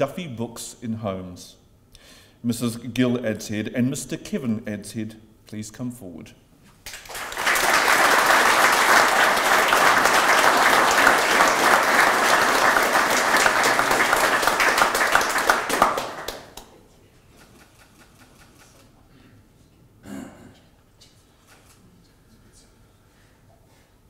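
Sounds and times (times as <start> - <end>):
audience applauding: 6.8 - 16.7.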